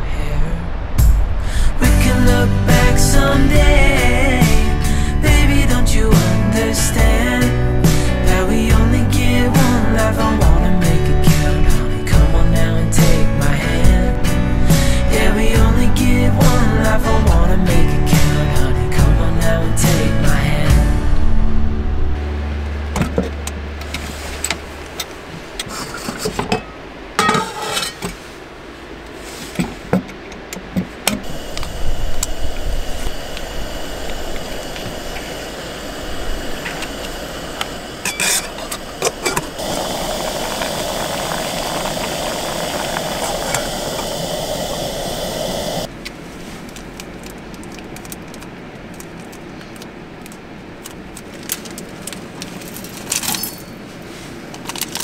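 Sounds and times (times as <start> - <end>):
gas stove burner hissing: 1.2 - 18.6, 31.2 - 45.9
cookware clinking: 26.4 - 28.1
packet rustling: 46.4 - 53.9, 54.5 - 55.0.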